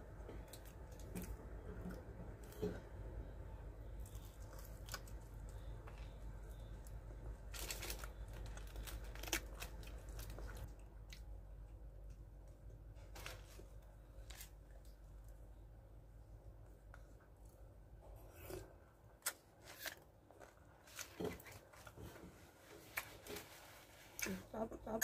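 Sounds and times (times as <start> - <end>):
crispy coating crackling: 0.0 - 15.4
crunching and chewing: 0.2 - 3.0, 3.9 - 11.3, 18.2 - 22.2.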